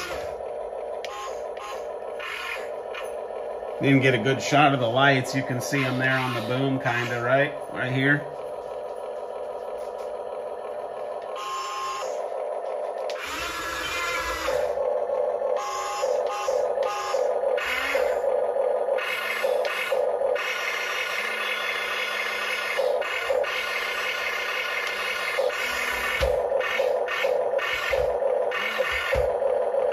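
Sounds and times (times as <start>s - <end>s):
small electric motors whining: 0.0s - 3.2s, 3.8s - 8.2s, 11.2s - 29.9s.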